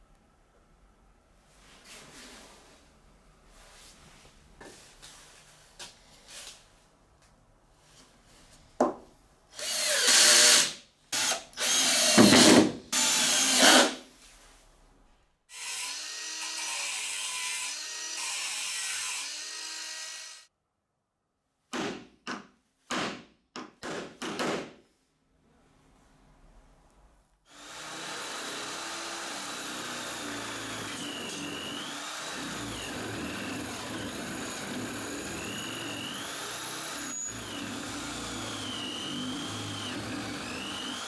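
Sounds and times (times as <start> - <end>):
drill driving screws into wood: 9.6 - 14.0, 27.5 - 41.0
power tool whine: 27.5 - 41.0.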